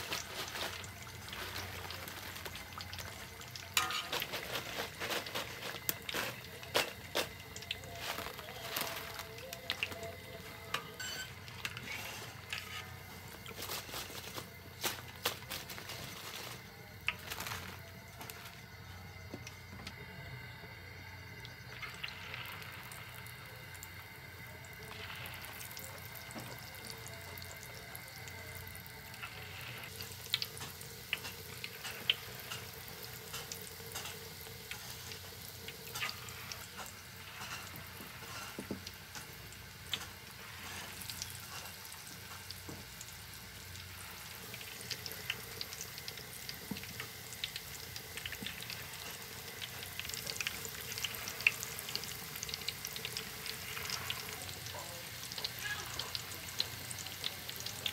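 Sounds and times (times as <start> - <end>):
food sizzling in hot oil: 0.0 - 57.9.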